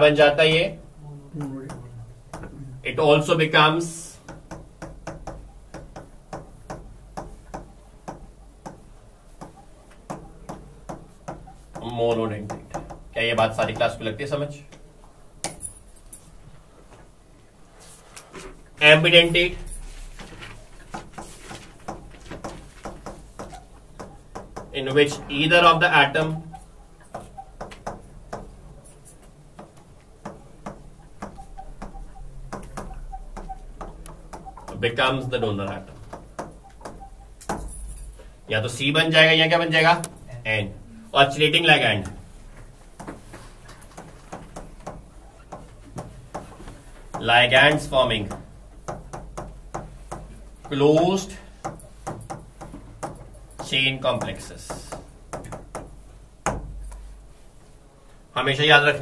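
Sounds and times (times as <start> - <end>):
steady low hum: 0.0 - 59.0
pen tapping on glass: 4.3 - 11.9, 29.6 - 34.8
faint low hum: 24.7 - 44.0.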